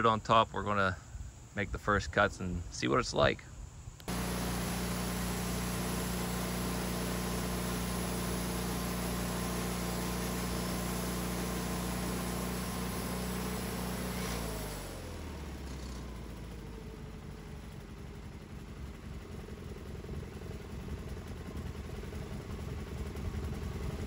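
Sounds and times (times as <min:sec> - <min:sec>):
sawmill engine running: 0:04.0 - 0:24.0
hiss: 0:04.1 - 0:15.9.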